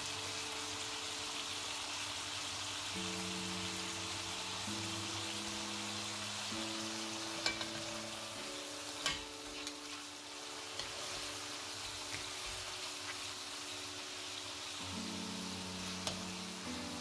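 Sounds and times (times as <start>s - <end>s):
steaks sizzling in frying pan: 0.0s - 17.0s
metal tongs clicking on pan: 7.4s - 7.8s, 9.0s - 9.2s.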